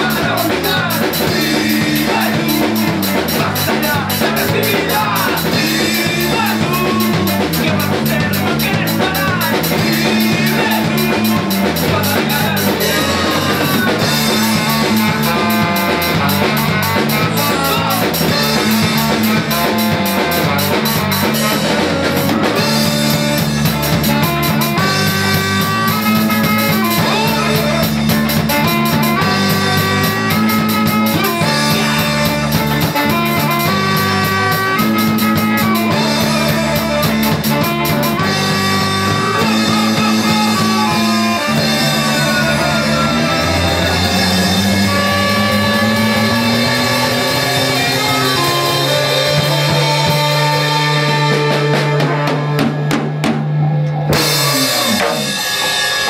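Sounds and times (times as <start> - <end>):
rising bass line: 0.0 - 55.4
drum and cymbal hits: 0.0 - 56.0
ska band playing: 0.0 - 56.0.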